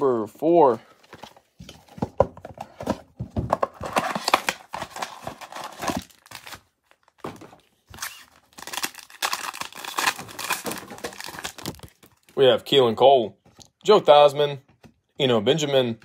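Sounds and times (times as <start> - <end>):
plastic wrap and foil crinkling: 7.9 - 12.3.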